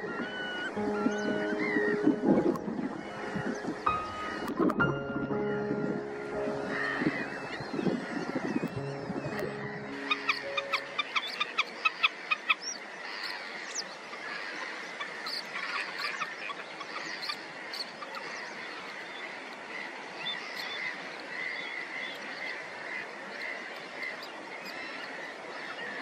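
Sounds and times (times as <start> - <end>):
bird calling sharp notes: 0.0 - 12.6
faint bird calls: 0.0 - 26.0
steady outdoor hiss: 0.0 - 26.0.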